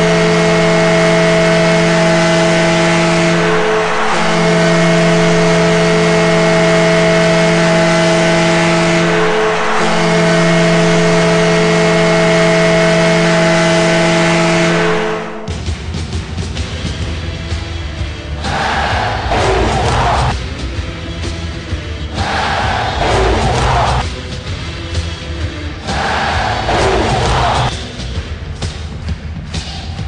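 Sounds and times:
crowd roar: 0.0 - 14.0, 18.3 - 20.4, 22.0 - 24.0, 25.7 - 27.7
goal horn blasts: 0.0 - 15.5, 18.5 - 20.4, 22.2 - 24.0, 26.2 - 27.7.

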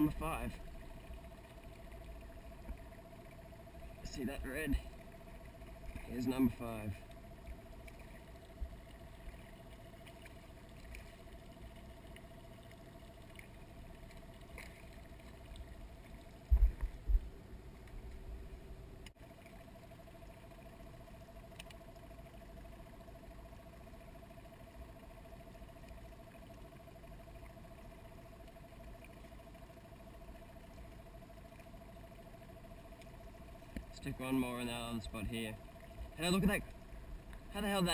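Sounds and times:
faint steady hum: 0.0 - 37.9.

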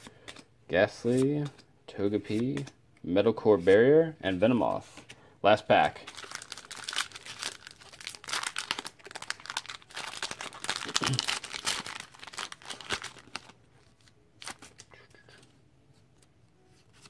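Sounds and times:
foil wrapper crinkling and tearing: 6.0 - 13.6.

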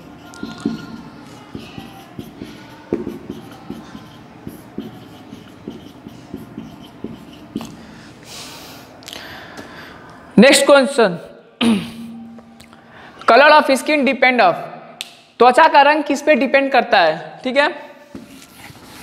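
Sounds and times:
marker pen writing on whiteboard: 0.0 - 8.2, 18.1 - 19.0.

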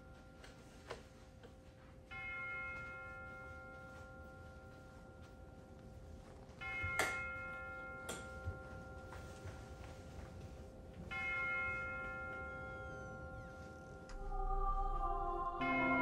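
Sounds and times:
soft background music: 0.0 - 16.0
bell-like chimes: 2.1 - 14.4, 15.6 - 16.0
steady held tone: 2.1 - 16.0
ringing chord struck: 10.9 - 16.0.

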